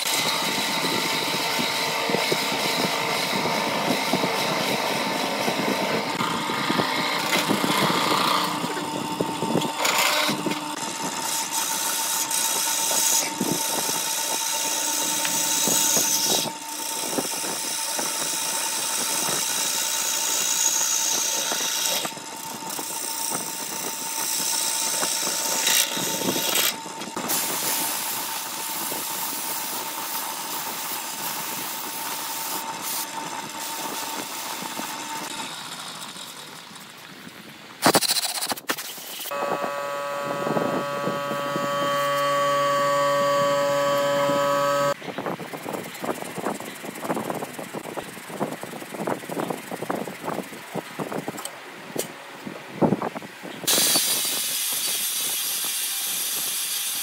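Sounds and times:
gouge cutting spinning wood: 0.0 - 37.0, 38.0 - 45.0
faint lathe motor tone: 0.1 - 36.4, 39.3 - 45.0
pitched whine with overtones: 39.2 - 45.0.

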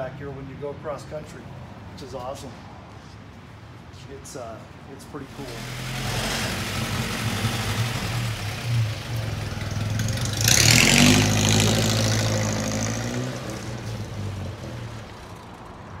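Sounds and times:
car engine idling and pulling away: 5.2 - 16.0.

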